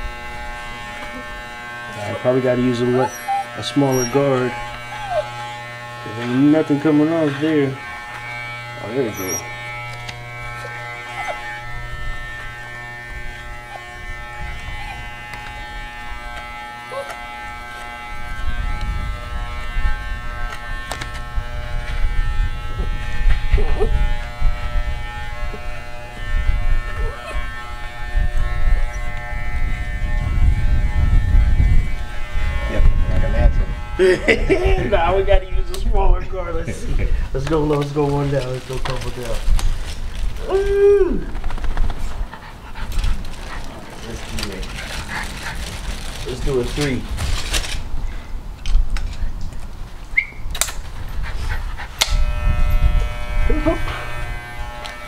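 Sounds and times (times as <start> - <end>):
electric hair clippers buzzing: 0.0 - 40.4, 51.7 - 55.0
dog panting: 2.8 - 5.4, 10.6 - 11.6, 13.6 - 15.6, 42.0 - 46.8, 51.0 - 52.0
dog whining: 2.8 - 5.6, 9.0 - 9.7, 10.5 - 11.7, 13.5 - 15.5, 16.8 - 17.3, 23.5 - 24.1, 26.8 - 27.6.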